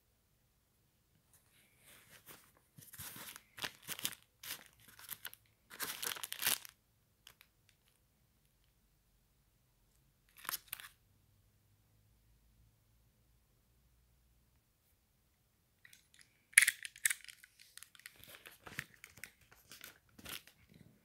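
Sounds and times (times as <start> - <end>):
plastic sleeve crinkling: 2.0 - 8.0, 16.1 - 20.8.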